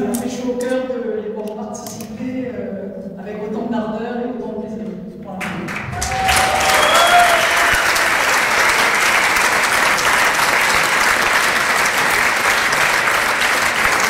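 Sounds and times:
audience applauding in hall: 5.4s - 14.0s
audience calls and whoops: 5.9s - 11.9s.

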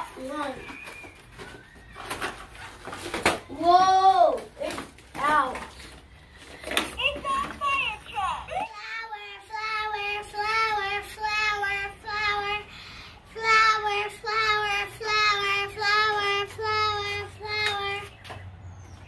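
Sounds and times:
child singing: 8.8s - 12.7s, 13.3s - 18.1s.

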